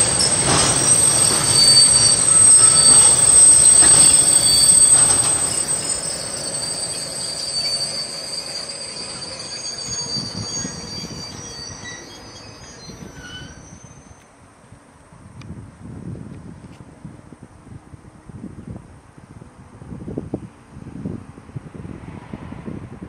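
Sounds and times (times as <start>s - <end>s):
low train rumble: 0.0s - 14.2s
train wheels squealing: 0.0s - 14.2s.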